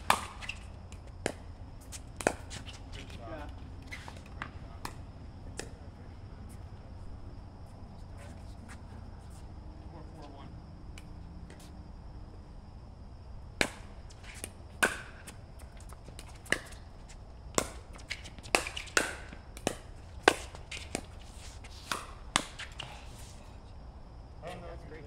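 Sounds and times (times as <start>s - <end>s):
plastic ball popping off paddles: 18.4s - 21.1s.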